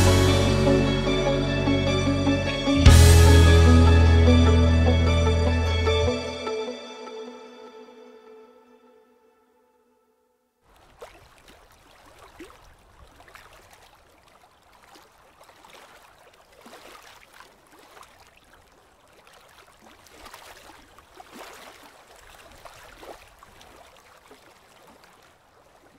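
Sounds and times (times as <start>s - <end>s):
water splashing and gurgling: 10.7s - 25.9s.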